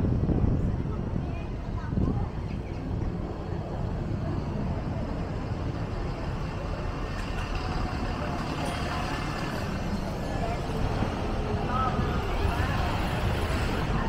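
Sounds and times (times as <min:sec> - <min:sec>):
faint voices of passers-by: 0:00.0 - 0:14.0
road traffic rumble: 0:00.0 - 0:14.0.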